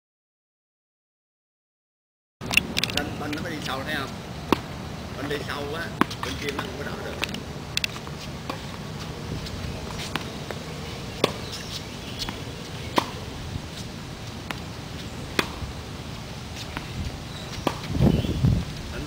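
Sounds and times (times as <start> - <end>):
tennis ball bouncing: 4.4 - 18.0
tennis ball hit by racket: 4.5 - 9.0, 9.9 - 10.6, 11.2 - 14.7, 15.3 - 15.7, 17.5 - 18.0.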